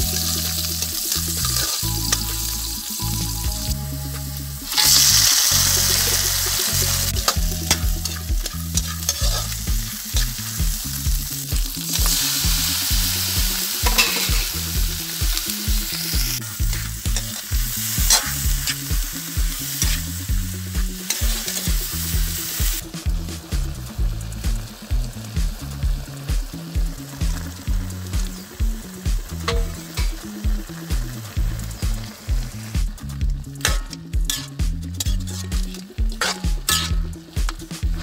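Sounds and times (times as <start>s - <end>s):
metal spatula scraping wok: 0.0s - 3.0s, 4.0s - 14.8s, 15.4s - 20.2s, 20.8s - 22.8s, 33.1s - 38.0s
food sizzling in hot oil: 0.0s - 38.0s.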